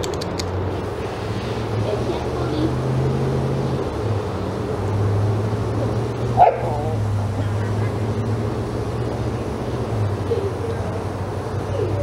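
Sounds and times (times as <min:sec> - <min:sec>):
steady low hum: 0:00.0 - 0:12.0
dog barking: 0:06.4 - 0:07.0.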